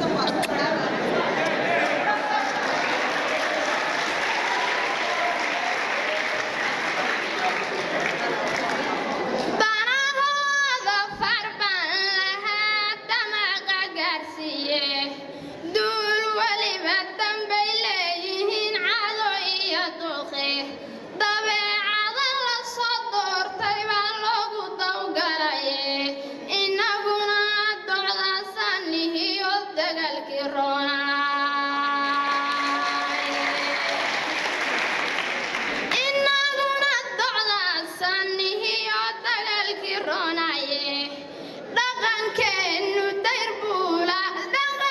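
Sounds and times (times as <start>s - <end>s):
woman chanting melodically: 9.6s - 34.2s.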